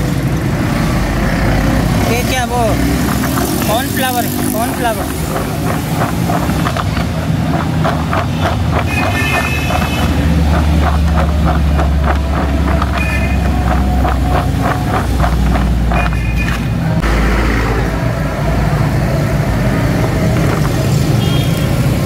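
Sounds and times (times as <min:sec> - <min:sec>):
engine rumbling: 0:00.0 - 0:22.0
potato fries rattling in plastic tub: 0:02.6 - 0:16.1.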